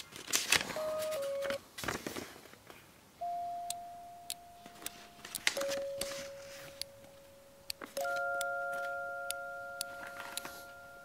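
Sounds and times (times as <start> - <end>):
paper crackling: 0.0 - 2.3
soft held electronic notes: 0.8 - 1.6, 3.2 - 11.0.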